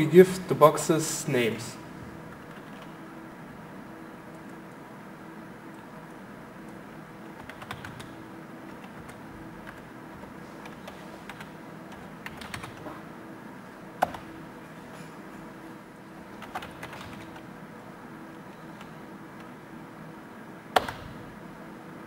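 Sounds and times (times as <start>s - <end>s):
keyboard keys tapping: 5.7s - 13.0s, 14.0s - 14.3s, 16.4s - 17.5s, 20.7s - 21.3s.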